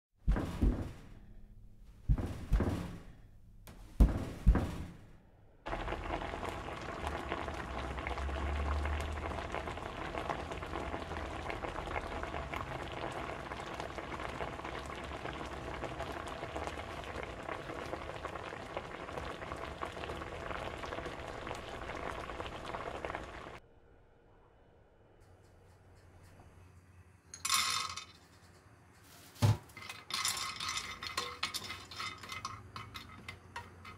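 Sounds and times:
sharp thumps: 0:00.2 - 0:05.2.

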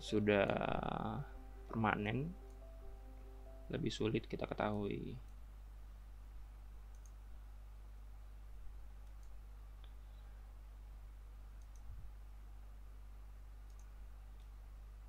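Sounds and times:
low electrical hum: 0:00.0 - 0:15.0
computer mouse clicks: 0:06.9 - 0:07.2, 0:09.0 - 0:10.0, 0:11.6 - 0:12.0, 0:13.6 - 0:14.6.

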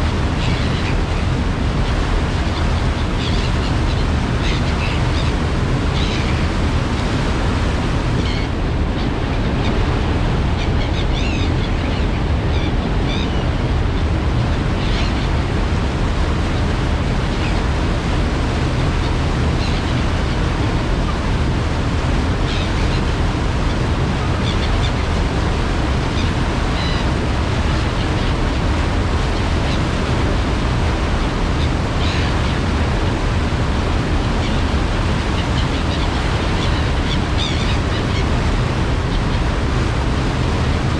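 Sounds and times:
water rushing: 0:00.0 - 0:40.9
wind: 0:00.0 - 0:40.9
low engine rumble: 0:07.8 - 0:13.1.

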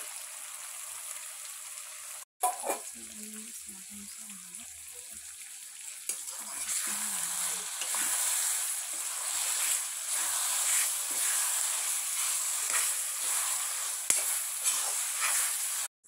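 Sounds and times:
meat sizzling in hot oil: 0:00.0 - 0:16.0
steel spoon stirring: 0:06.1 - 0:15.9.

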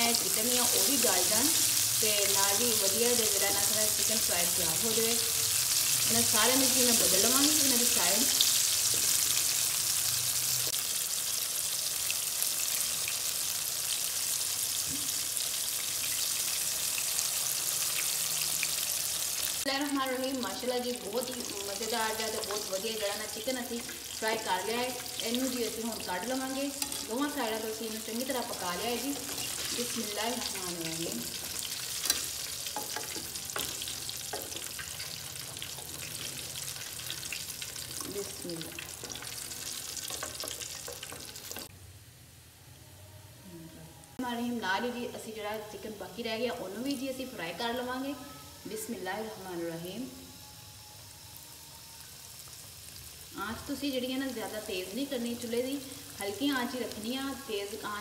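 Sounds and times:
chicken deep-frying sizzle: 0:00.0 - 0:41.9, 0:50.2 - 0:58.0
utensils knocking on metal pot: 0:32.0 - 0:36.2, 0:39.0 - 0:41.7.

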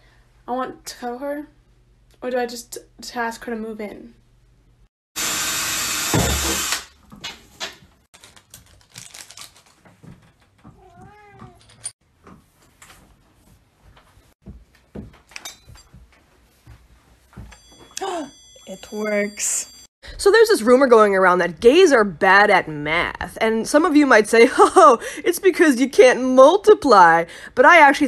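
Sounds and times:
cat meowing: 0:10.8 - 0:11.6.

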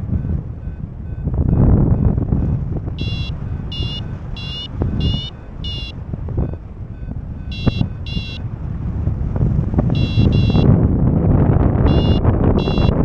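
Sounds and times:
wind on microphone: 0:00.0 - 0:13.0
short high beeps: 0:03.0 - 0:08.4, 0:10.0 - 0:10.7, 0:11.9 - 0:13.0.

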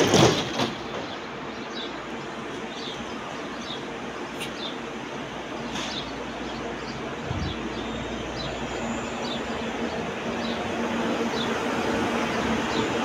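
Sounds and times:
train wheels rumbling on rails: 0:00.0 - 0:13.0.

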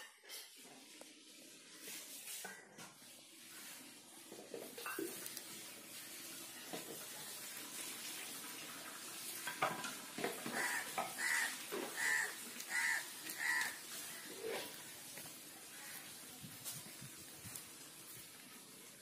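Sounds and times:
short animal calls: 0:10.6 - 0:14.4.

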